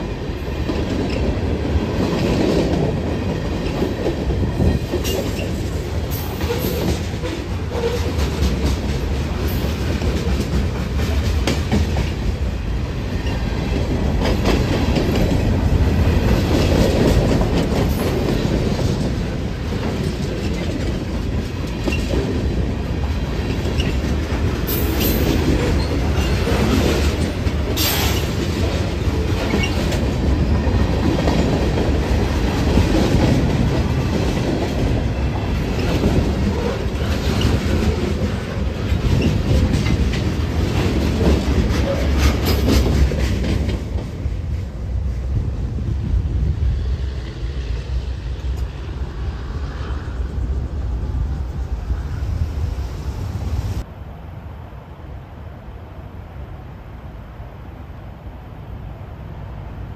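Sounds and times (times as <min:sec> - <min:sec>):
freight train rumbling: 0:00.0 - 0:59.9
wheels clacking over rail joints: 0:00.4 - 0:12.6, 0:13.2 - 0:44.4.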